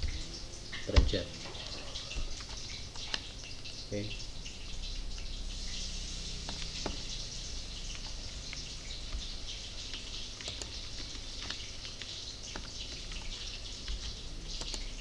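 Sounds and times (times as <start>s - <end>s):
steady hiss: 0.0s - 15.0s
mouse and keyboard clicks: 9.9s - 14.9s.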